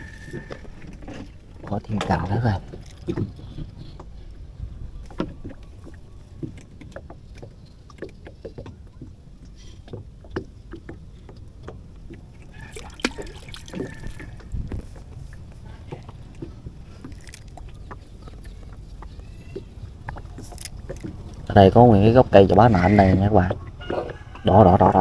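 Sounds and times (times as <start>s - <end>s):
fishing tackle clicks and knocks: 0.4s - 4.2s, 15.9s - 21.5s.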